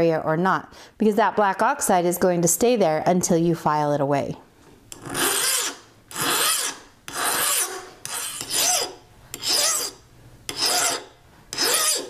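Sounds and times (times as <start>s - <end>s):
hand file rasping on steel: 5.0s - 12.0s.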